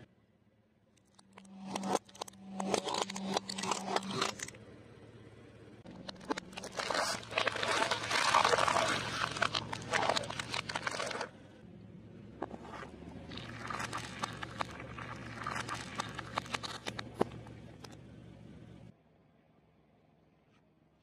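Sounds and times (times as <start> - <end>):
plastic bottles crunching under tyre: 5.9 - 11.3, 12.5 - 17.4.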